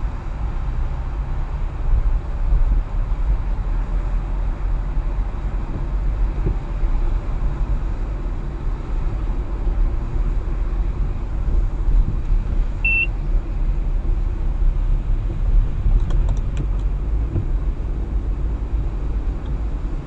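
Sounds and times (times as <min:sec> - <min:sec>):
car engine and tyres on wet road: 0:00.0 - 0:20.0
short high beep: 0:12.8 - 0:13.1.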